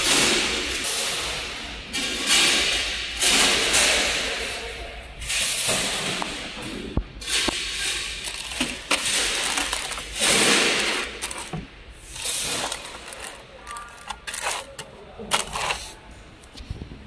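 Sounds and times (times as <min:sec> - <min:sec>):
screws clinking together: 0:07.2 - 0:15.8
plastic bags crinkling: 0:07.6 - 0:16.0.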